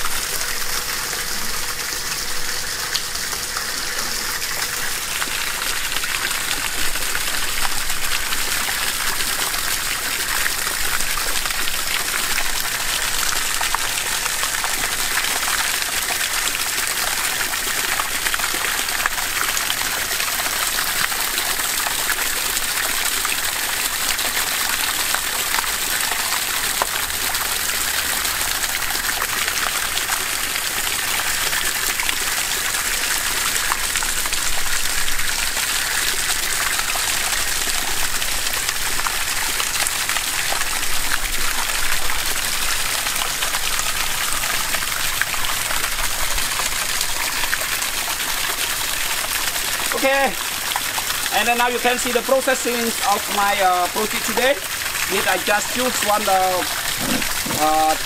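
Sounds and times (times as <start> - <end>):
water gushing from a pipe: 0.0 - 58.0
water splashing onto plants: 46.8 - 58.0.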